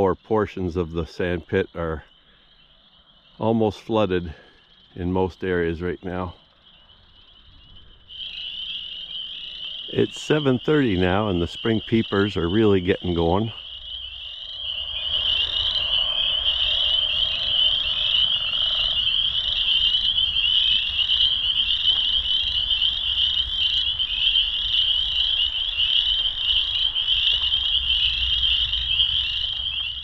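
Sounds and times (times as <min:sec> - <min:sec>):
frogs peeping chorus: 0:00.0 - 0:30.0
lower-pitched call: 0:00.0 - 0:30.0.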